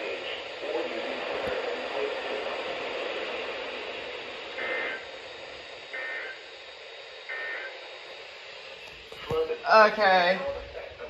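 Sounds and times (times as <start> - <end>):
radio static: 0.0 - 11.0
high data tone bursts: 4.4 - 8.9.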